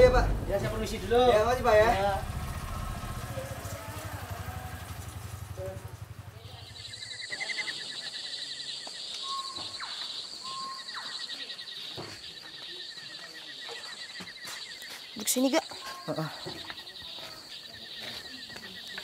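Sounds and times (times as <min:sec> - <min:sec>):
engine idling: 0:00.0 - 0:07.2
high chirring and chirping: 0:04.5 - 0:19.0.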